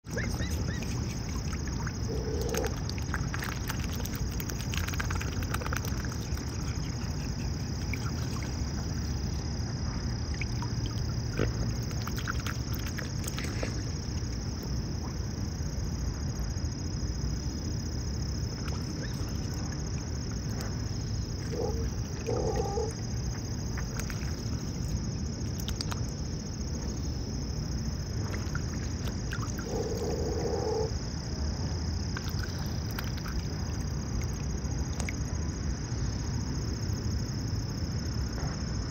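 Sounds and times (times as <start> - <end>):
swans dabbling in water: 0.0 - 15.2, 18.4 - 26.2, 28.1 - 30.9, 32.1 - 35.4.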